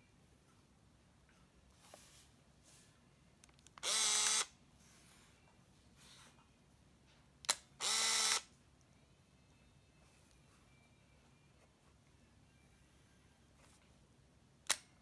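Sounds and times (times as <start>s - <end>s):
camera film advance whir: 3.8s - 4.5s, 7.8s - 8.4s.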